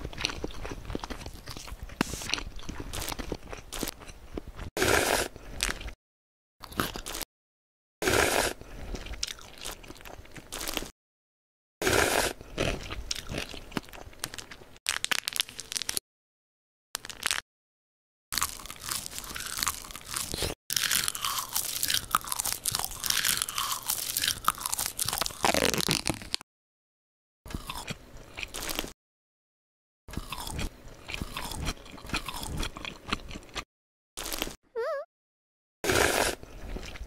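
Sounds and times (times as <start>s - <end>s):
crunchy chewing: 0.0s - 6.0s, 6.6s - 7.3s, 8.1s - 10.9s, 11.8s - 16.0s, 18.4s - 26.4s, 27.5s - 29.0s, 30.1s - 34.6s, 35.9s - 37.0s.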